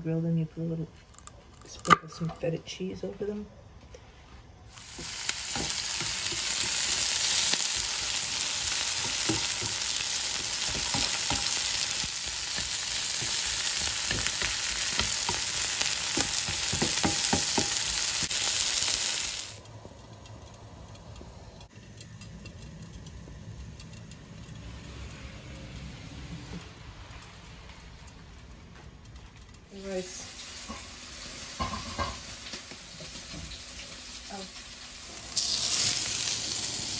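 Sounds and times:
vegetables sizzling in a pan: 4.7s - 19.6s, 29.7s - 36.9s.

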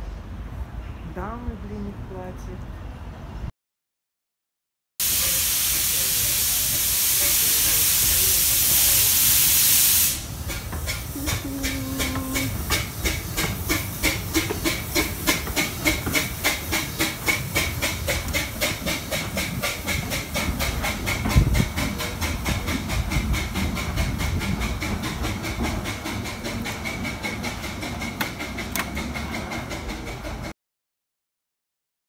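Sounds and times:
steam hissing: 5.0s - 28.6s
steam locomotive chuffing: 5.0s - 30.6s.

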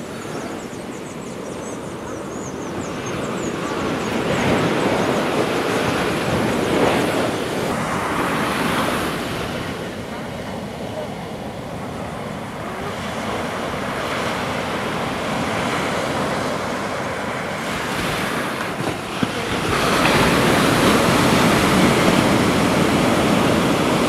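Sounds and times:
surf breaking on beach: 3.2s - 24.0s.

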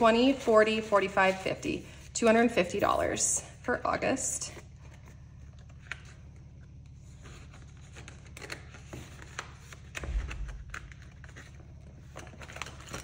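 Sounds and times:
steady low hum: 0.0s - 13.0s
paper rustling: 6.9s - 13.0s.

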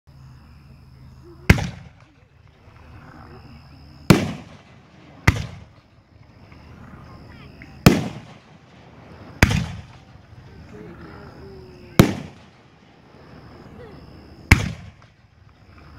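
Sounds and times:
firework bangs with echo: 1.5s - 2.2s, 4.1s - 6.0s, 7.8s - 10.4s, 11.8s - 13.6s, 14.4s - 15.3s.

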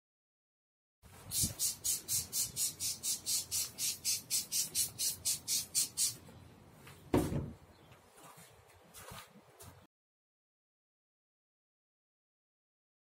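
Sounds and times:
spray bottle squirts hissing: 1.2s - 6.2s.

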